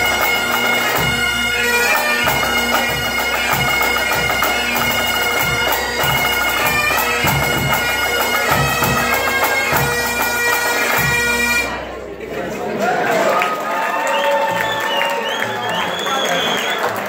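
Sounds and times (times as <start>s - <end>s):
bagpipes playing a tune: 0.0s - 11.9s.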